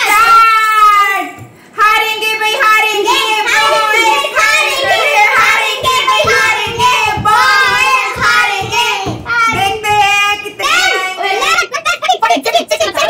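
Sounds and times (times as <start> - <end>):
children and woman chanting: 1.9 - 11.5.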